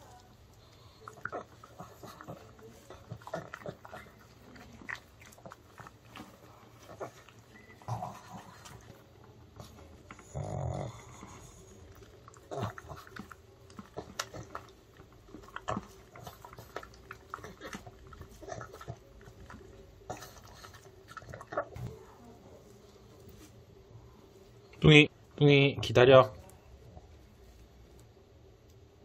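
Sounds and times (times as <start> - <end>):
dog licking and smacking: 0.0 - 10.2, 11.6 - 22.0.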